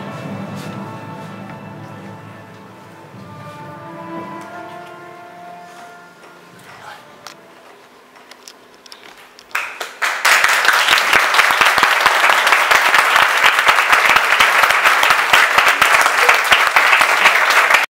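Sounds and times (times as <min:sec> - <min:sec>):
audience applauding: 0:09.5 - 0:17.9.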